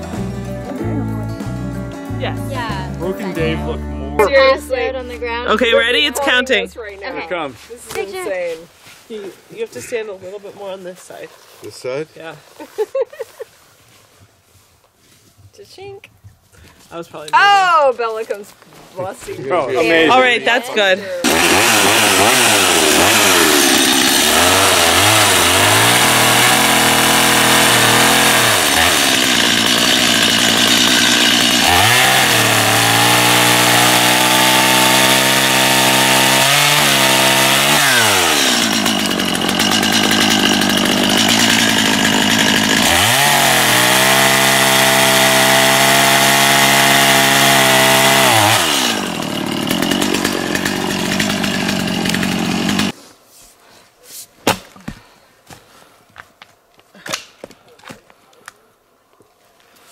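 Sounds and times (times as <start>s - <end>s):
chainsaw cutting logs: 21.2s - 53.0s.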